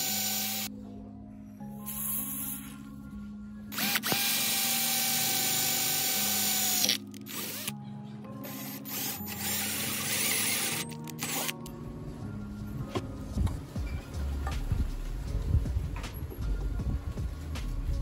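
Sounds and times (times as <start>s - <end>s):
power drill whining: 0.0s - 0.7s, 3.8s - 7.7s, 8.5s - 11.5s.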